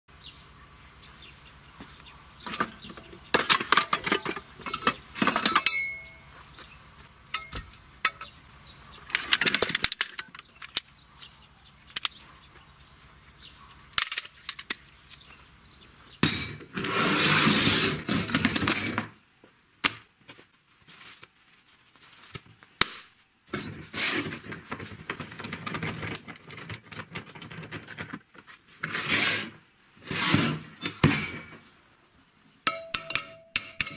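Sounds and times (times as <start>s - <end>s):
metal rattling and scraping: 2.4s - 6.3s, 9.0s - 10.8s, 16.2s - 19.1s, 23.5s - 31.6s
metal car parts knocking together: 2.5s - 6.2s, 7.3s - 8.3s, 9.1s - 10.8s, 32.7s - 33.9s.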